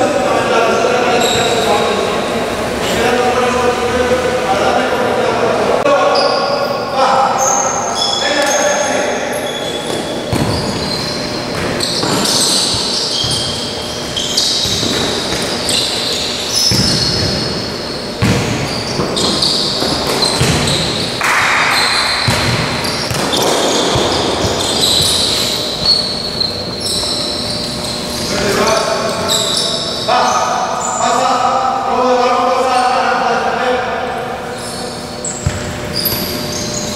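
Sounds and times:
shoes squeaking on court: 0.7 - 2.3, 6.1 - 31.3, 34.4 - 36.9
ball kicked and bouncing: 9.9 - 13.5, 16.7 - 17.5, 18.2 - 21.5, 22.2 - 25.9, 35.4 - 36.3.

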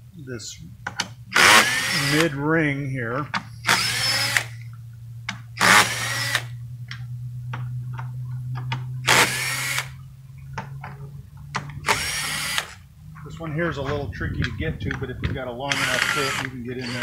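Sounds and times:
low hum: 0.0 - 17.0
cordless drill motor whine: 1.3 - 2.4, 3.4 - 4.7, 5.6 - 6.6, 9.0 - 10.1, 11.6 - 12.8, 15.6 - 17.0.

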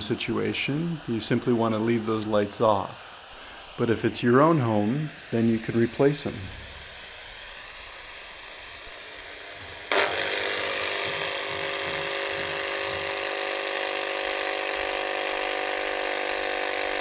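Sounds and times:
radio hissing softly: 0.0 - 17.0
loud radio static with buzzing tones: 9.9 - 17.0.

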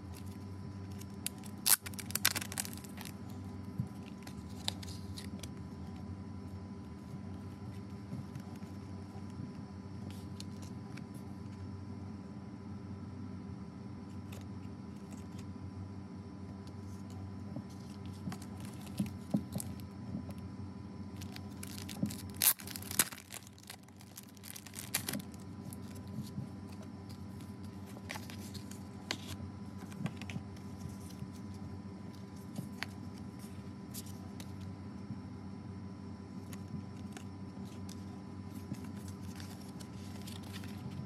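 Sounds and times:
faint steady hum: 0.0 - 41.0
plastic packaging crinkling and tearing: 0.1 - 6.0, 17.7 - 19.9, 21.2 - 34.7, 36.4 - 41.0
cards tapping and rustling: 0.2 - 6.0, 16.7 - 20.3, 21.2 - 34.7, 36.4 - 41.0.

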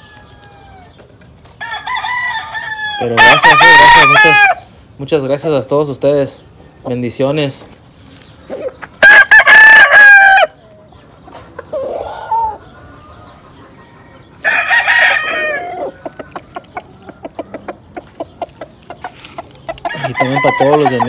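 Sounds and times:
rooster crowing: 1.6 - 4.6, 9.0 - 10.6, 14.4 - 15.9, 19.8 - 21.0
rooster clucking: 11.3 - 21.0.

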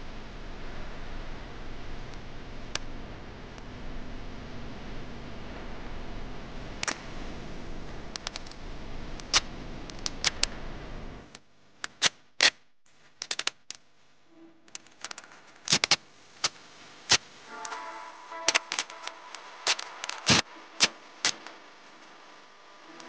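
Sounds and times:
packing tape crackling: 18.4 - 21.6.

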